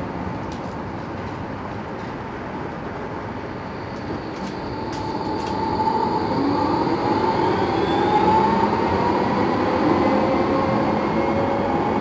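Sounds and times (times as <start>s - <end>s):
tram rumbling on rails: 0.0s - 12.0s
tram whine rising in pitch: 3.4s - 12.0s.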